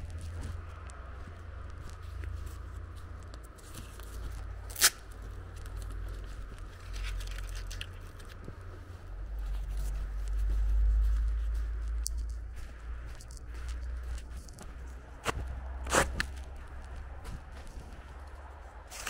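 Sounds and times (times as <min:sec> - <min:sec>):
wind buffeting microphone: 0:08.0 - 0:18.9.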